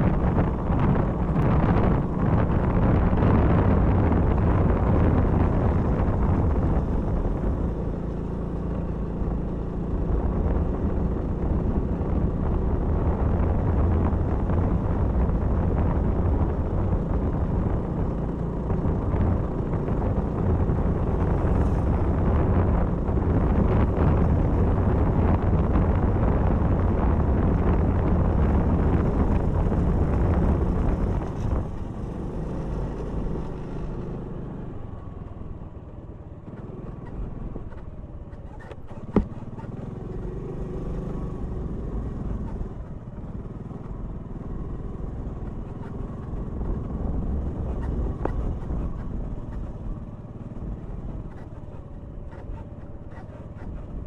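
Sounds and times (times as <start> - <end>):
scooter engine running: 0.2 - 54.0.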